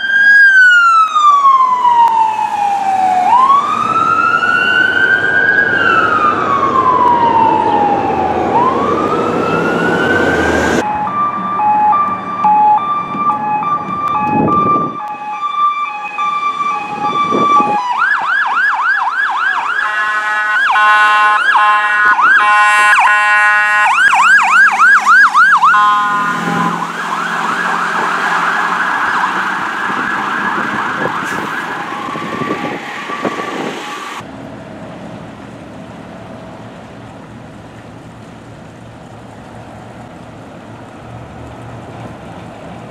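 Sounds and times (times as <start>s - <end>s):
emergency vehicle sirens: 0.0s - 42.9s
steady horn tones: 19.7s - 24.0s, 25.6s - 27.1s.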